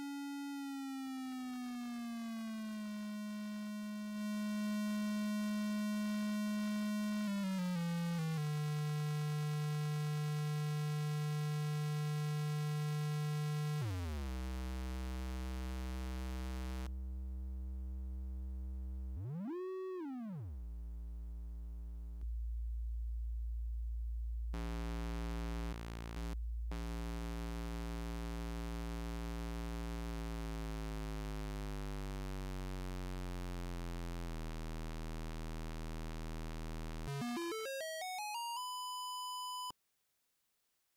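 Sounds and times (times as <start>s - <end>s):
electronic test tone: 37.1s - 39.7s.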